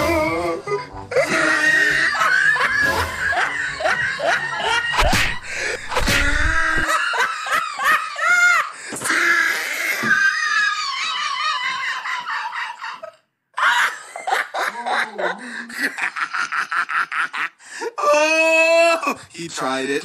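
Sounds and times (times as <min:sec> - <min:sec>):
woman screaming and laughing: 0:01.1 - 0:08.7, 0:10.0 - 0:15.3.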